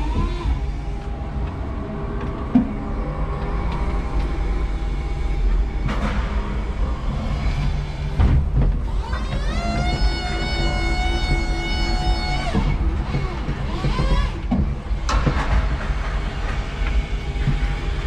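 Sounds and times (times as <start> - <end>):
forklift drive and hydraulics drone: 0.0 - 18.0
rattles from cab and mast: 8.2 - 17.9.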